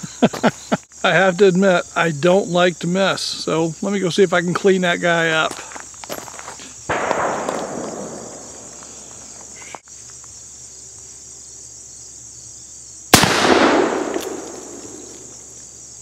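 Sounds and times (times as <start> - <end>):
revolver shots with echo: 6.9 - 9.1, 13.2 - 15.3.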